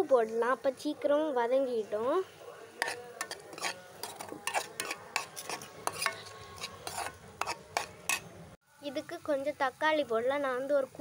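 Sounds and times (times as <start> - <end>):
utensil scraping a metal pan: 2.8 - 8.3.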